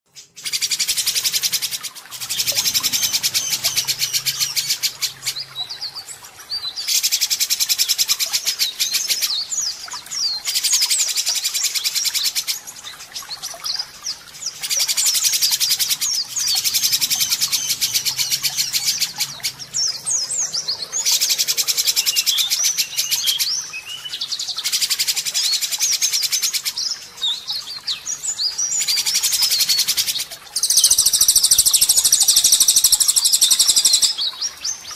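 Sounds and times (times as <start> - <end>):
bird whistled glides and trills: 0.4 - 9.9, 12.8 - 24.8, 28.8 - 34.9.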